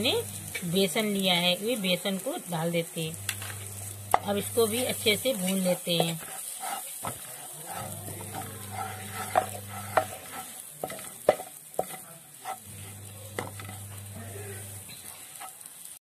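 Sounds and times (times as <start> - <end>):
paste sizzling in oil: 0.0 - 16.0
spatula scraping a pan: 3.3 - 15.9
spatula clacking on pan: 5.3 - 12.6.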